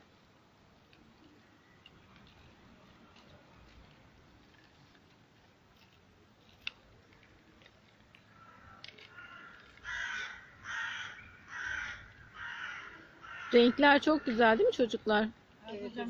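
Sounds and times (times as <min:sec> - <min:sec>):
crow cawing: 0:08.3 - 0:14.7.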